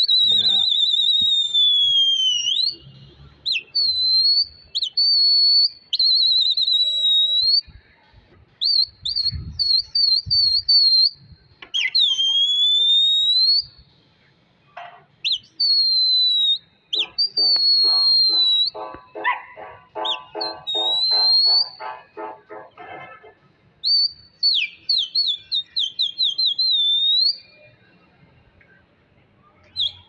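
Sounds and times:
shrill human whistling: 0.0s - 7.8s, 8.6s - 13.8s, 15.2s - 19.0s, 20.0s - 22.1s, 23.8s - 27.7s, 29.7s - 30.0s.

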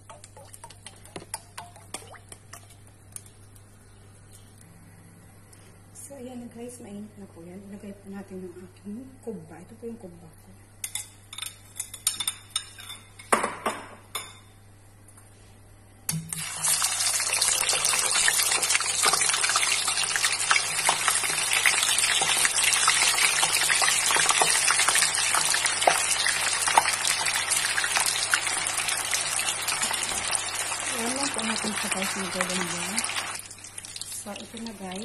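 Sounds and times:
oil sizzling loudly: 16.2s - 35.0s.

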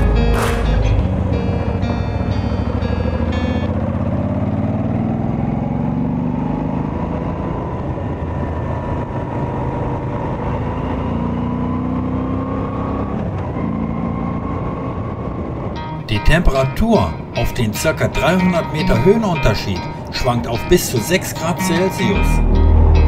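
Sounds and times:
motorcycle engine under way: 0.3s - 15.8s.

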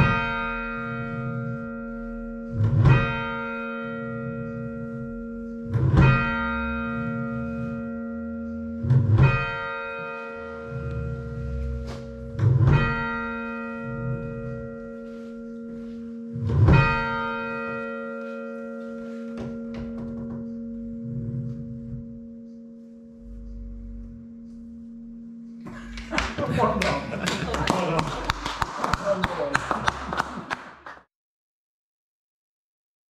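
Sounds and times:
muffled church bells thudding: 0.0s - 25.9s.

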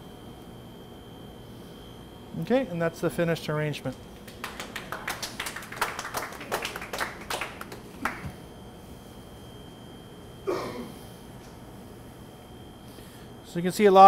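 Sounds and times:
people clapping: 4.2s - 8.4s.

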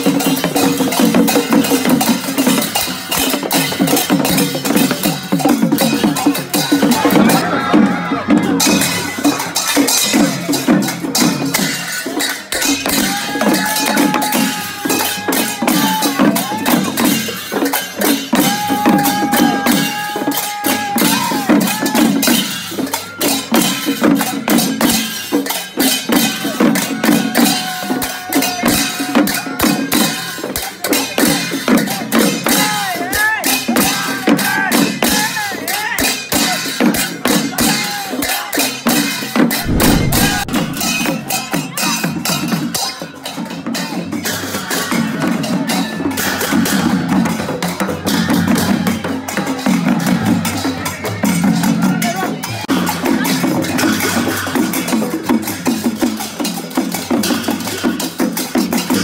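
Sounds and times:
hand cymbals clashing: 0.0s - 7.4s, 8.6s - 32.8s
drumming: 0.0s - 30.1s, 39.5s - 41.7s
crowd calling out: 6.8s - 9.6s, 12.8s - 17.0s, 18.4s - 22.3s.

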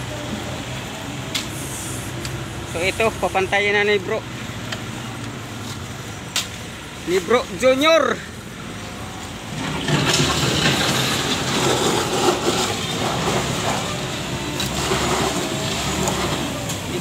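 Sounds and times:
stones crunching and sliding: 9.6s - 16.5s
shovel scraping gravel: 9.6s - 17.0s.

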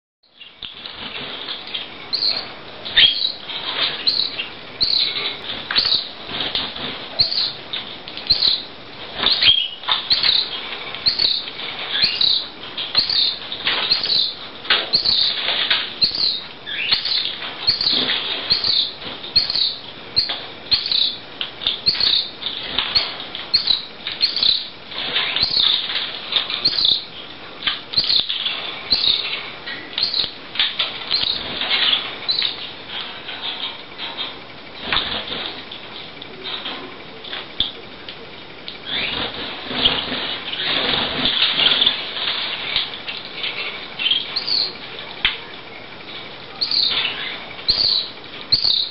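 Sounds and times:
bird chick cheeping: 1.7s - 7.6s, 8.2s - 15.4s, 16.0s - 25.9s, 26.5s - 27.2s, 27.9s - 30.4s, 31.1s - 32.6s, 44.0s - 44.8s, 46.6s - 48.9s.

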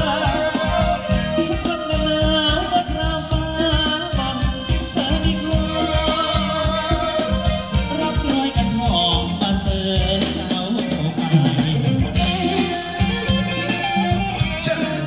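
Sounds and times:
steady drum beat: 0.0s - 15.0s.

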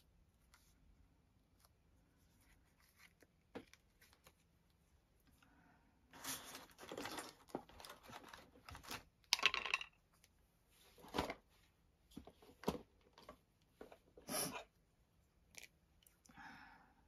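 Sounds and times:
paper rustling and sliding: 6.1s - 9.0s.

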